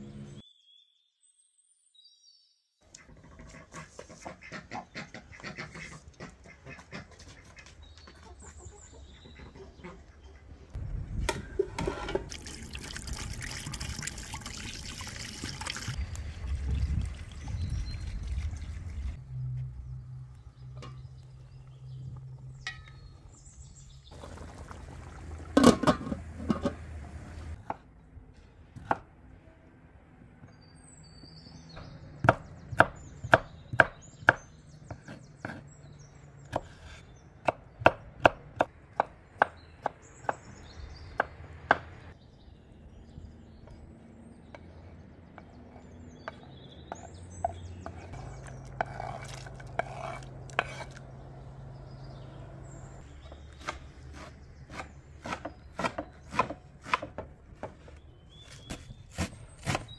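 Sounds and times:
knife chopping on wooden board: 0:53.6 - 0:57.8.

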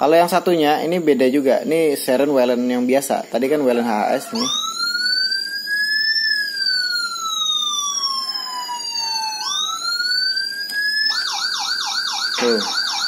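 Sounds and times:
siren wailing and yelping: 0:03.9 - 0:13.0.

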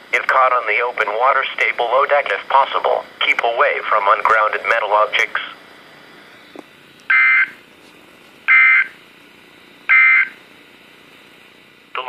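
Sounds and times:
radio hiss: 0:00.0 - 0:10.6, 0:11.4 - 0:12.0
buzzy two-tone data bursts: 0:07.1 - 0:07.6, 0:08.5 - 0:09.0, 0:09.9 - 0:10.4.

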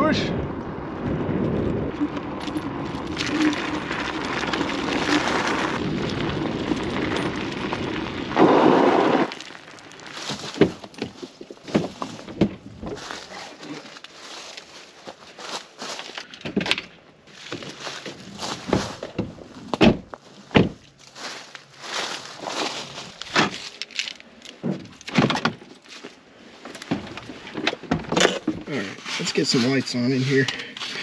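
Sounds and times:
wind buffeting microphone: 0:00.0 - 0:09.2
scooter road noise: 0:00.0 - 0:11.4.

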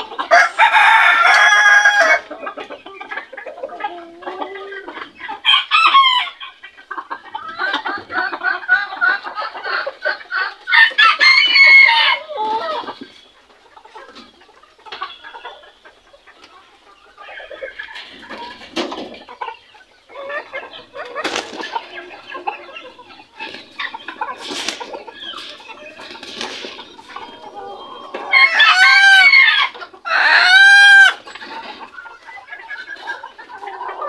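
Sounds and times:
chickens clucking: 0:00.0 - 0:34.0
rooster crowing: 0:00.3 - 0:02.2.

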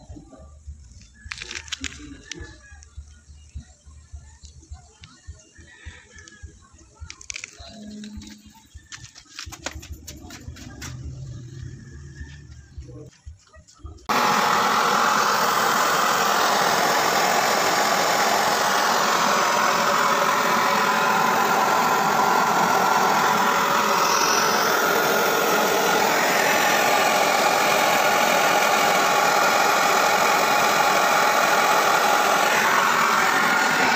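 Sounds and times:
gas burner flame hissing: 0:14.1 - 0:33.9.

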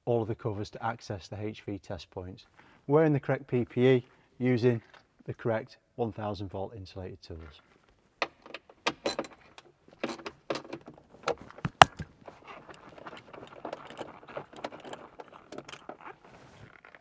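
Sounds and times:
handling noise: 0:07.7 - 0:17.0
metallic clicks of bolts and tools: 0:08.2 - 0:12.1.

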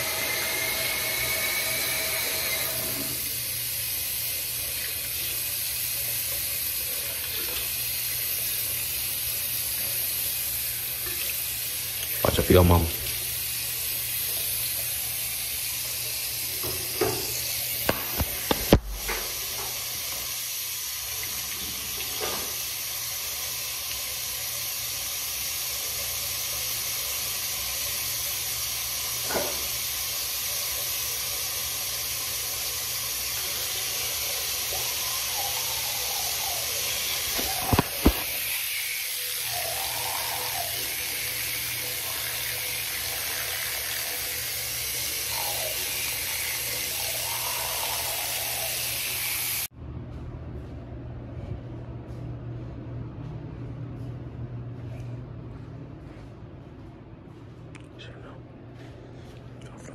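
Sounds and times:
sink tap running: 0:00.0 - 0:49.7.

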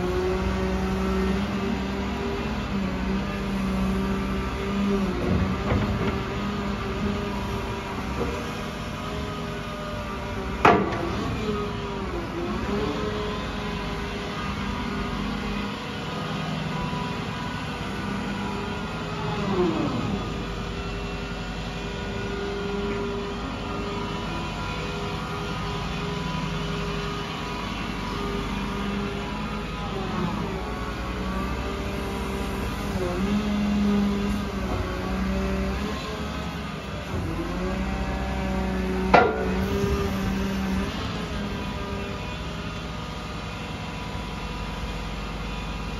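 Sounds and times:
diesel engine running: 0:00.0 - 0:45.9
sharp clunk: 0:39.1 - 0:39.6.

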